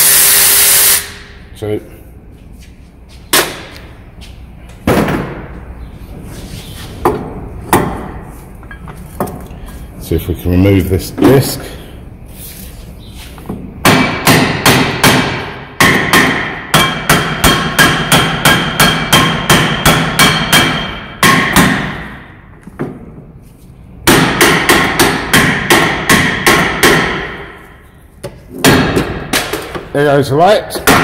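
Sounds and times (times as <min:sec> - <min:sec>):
hammer striking brake disc: 0:13.8 - 0:22.3, 0:24.0 - 0:27.6.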